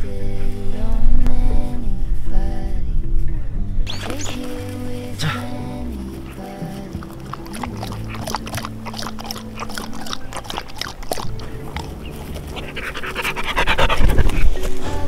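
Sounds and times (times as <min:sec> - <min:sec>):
dog lapping water: 0:06.2 - 0:14.6.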